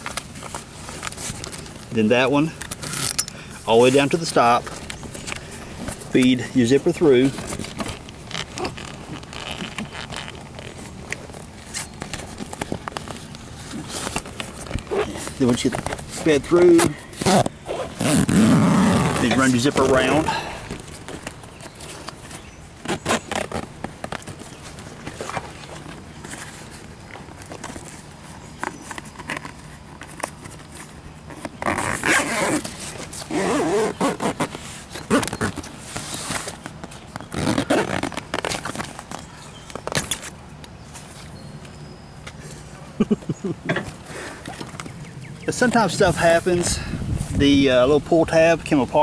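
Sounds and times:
zipper clicks: 16.8s - 20.1s, 31.3s - 39.2s.

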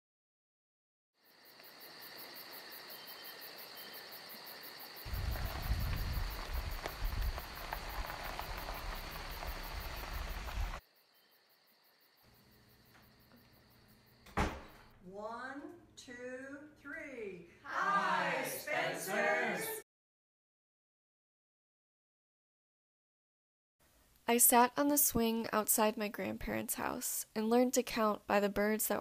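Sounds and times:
insects chirring: 1.2s - 14.9s
low uneven rumble: 5.1s - 10.8s.

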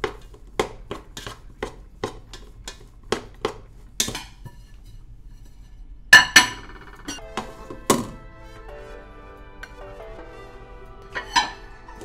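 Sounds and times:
wooden spoon stirring rice in pot: 0.0s - 5.9s.

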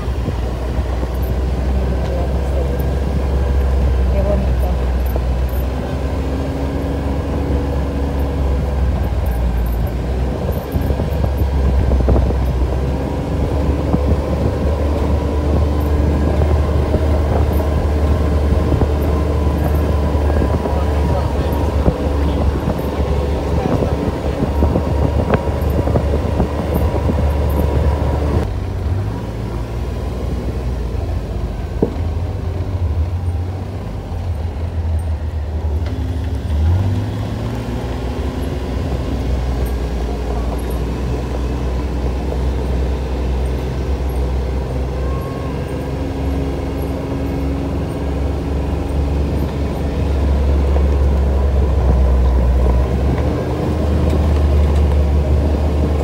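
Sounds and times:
quad engine running: 0.0s - 56.0s.

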